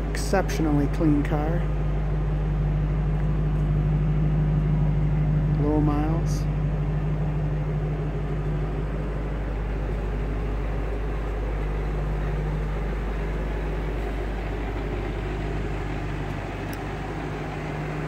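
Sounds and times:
car engine idling: 0.0 - 18.0.

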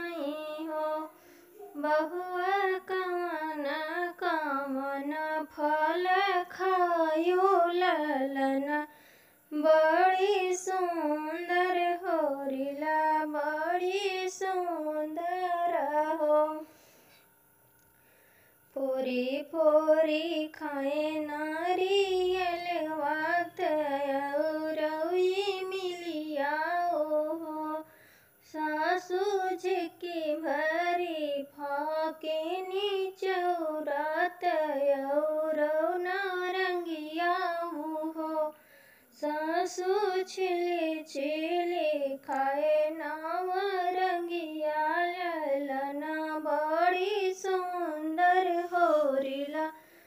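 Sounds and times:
woman singing unaccompanied: 0.0 - 16.9, 18.7 - 50.0.

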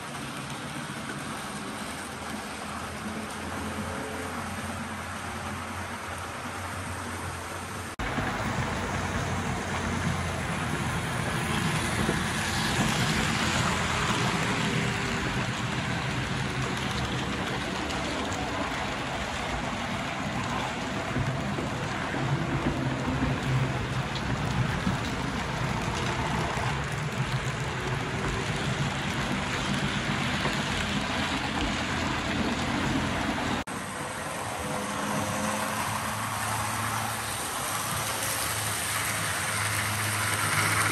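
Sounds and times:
model train wheels rattling: 8.2 - 33.6, 36.9 - 40.9.

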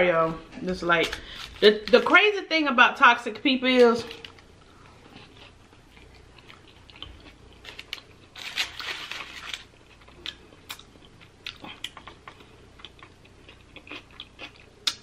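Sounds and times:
person chewing food: 4.3 - 8.4, 9.3 - 15.0
foil wrapper crinkling: 7.6 - 9.8.

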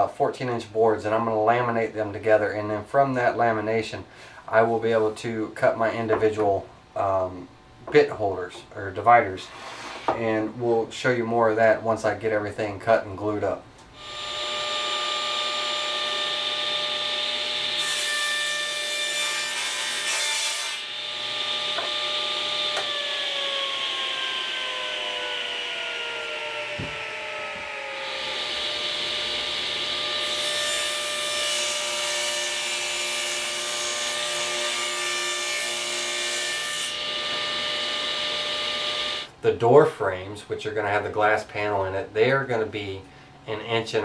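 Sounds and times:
saw blade cutting wood: 14.0 - 33.6, 34.4 - 39.3
table saw whine: 14.0 - 39.4.

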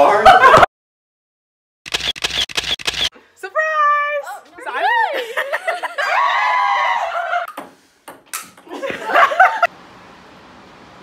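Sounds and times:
people shouting and squealing: 6.0 - 7.5
table tennis ball clicks: 7.5 - 8.7.

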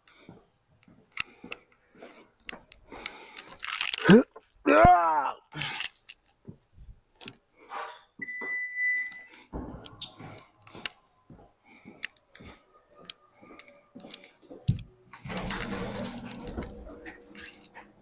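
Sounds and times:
clicks and knocks of handling: 2.4 - 4.5, 12.0 - 17.8
electronic beep: 8.2 - 9.4.

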